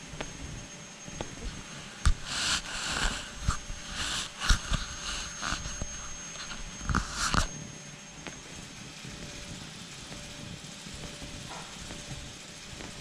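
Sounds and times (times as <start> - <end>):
hissing puffs at microphone: 1.6 - 7.5.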